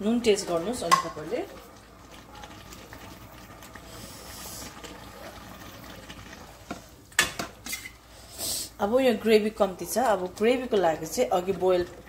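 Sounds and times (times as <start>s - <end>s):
broth simmering with hiss: 0.0s - 12.0s.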